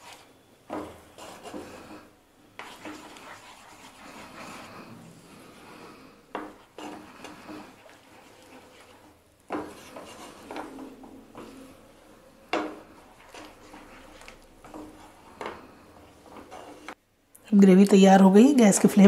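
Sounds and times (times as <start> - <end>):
spatula scraping frying pan: 0.0 - 17.0
spatula knocking pan: 9.5 - 11.6, 12.5 - 13.8.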